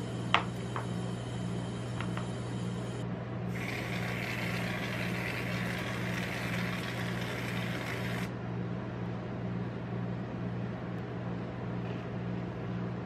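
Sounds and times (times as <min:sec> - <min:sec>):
aerosol can hissing: 0:03.6 - 0:08.3.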